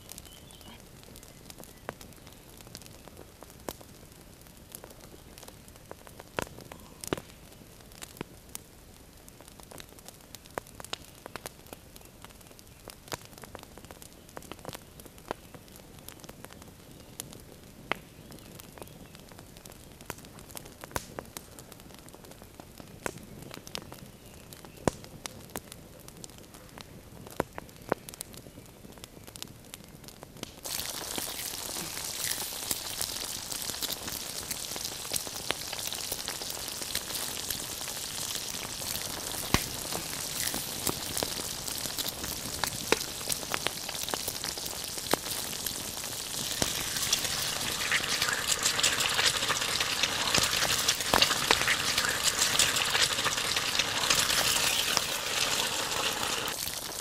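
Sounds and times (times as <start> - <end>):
campfire crackling and popping: 0.0 - 57.0
steak sizzling in a pan: 30.6 - 57.0.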